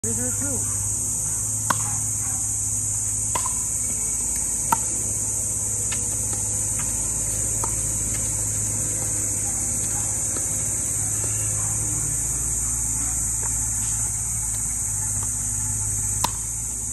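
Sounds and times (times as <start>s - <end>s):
high insect drone: 0.0s - 16.9s
paddles hitting plastic ball: 3.2s - 11.4s, 13.1s - 16.9s.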